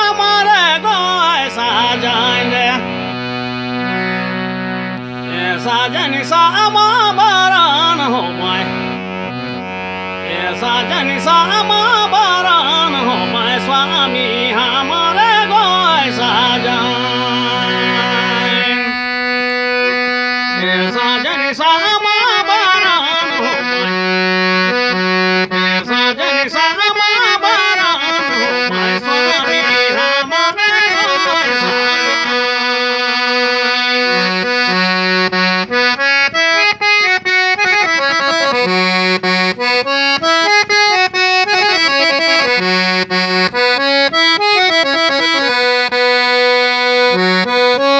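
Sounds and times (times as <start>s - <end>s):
person singing: 0.0s - 9.2s, 10.0s - 19.0s, 20.6s - 35.5s
free-reed keyboard folk melody: 0.0s - 47.9s.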